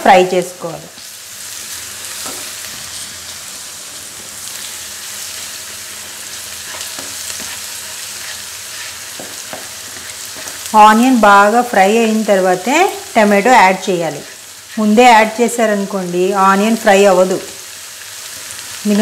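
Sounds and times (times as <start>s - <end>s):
onions sizzling in hot oil: 0.0s - 19.0s
spatula scraping and ticking on pan: 6.6s - 10.7s.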